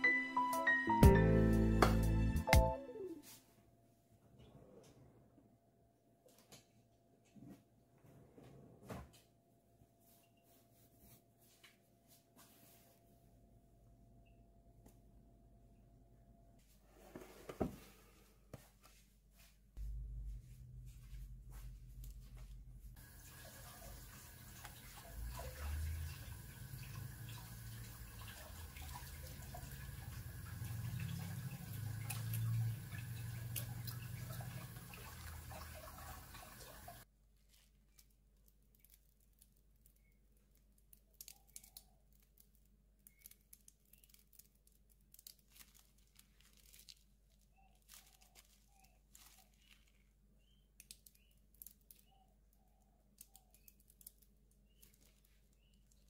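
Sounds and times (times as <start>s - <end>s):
low hum: 19.8s - 23.0s.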